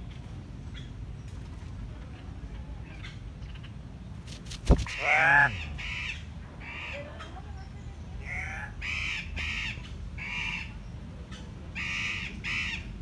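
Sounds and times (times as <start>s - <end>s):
bird squawking calls: 4.8s - 6.2s.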